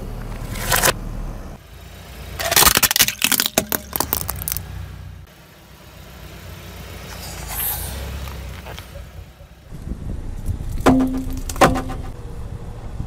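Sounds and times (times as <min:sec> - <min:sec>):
car engine rumble: 0:00.0 - 0:13.0
tyre crushing plastic shell: 0:02.4 - 0:04.6.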